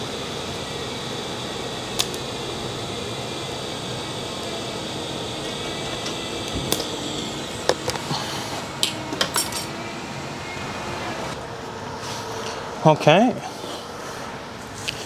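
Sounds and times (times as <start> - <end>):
steady machine hum: 0.0 - 15.0
metal objects clinking: 9.2 - 9.7.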